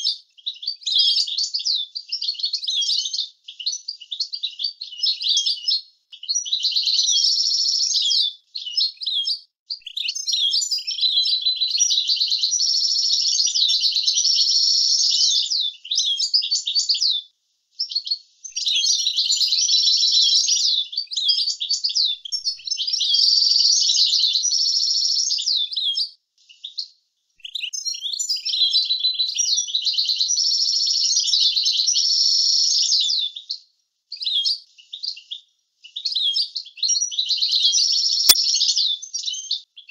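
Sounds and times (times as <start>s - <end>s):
goldfinch twittering song: 6.4s - 15.4s.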